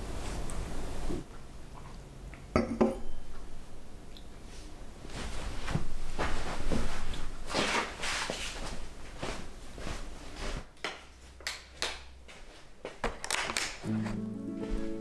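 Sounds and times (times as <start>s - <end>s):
rustling and shuffling: 4.4s - 15.0s.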